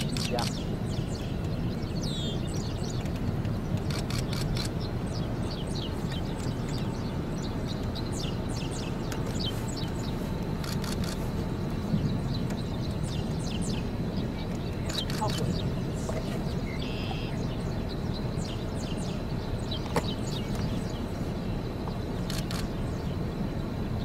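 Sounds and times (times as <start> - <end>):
wind rumble on microphone: 0.0 - 24.0
high bird chirps: 12.0 - 21.0.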